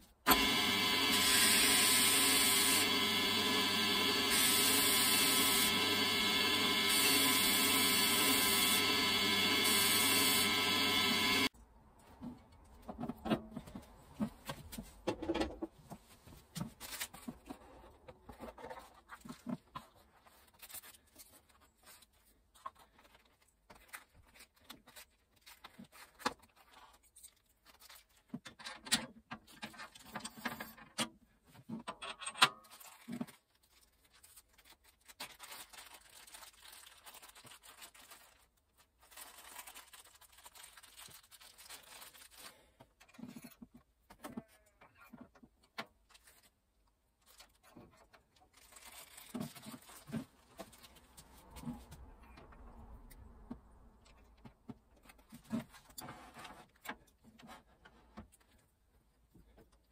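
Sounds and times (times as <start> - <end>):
plastic bag rustling: 32.7 - 42.7, 48.4 - 51.8.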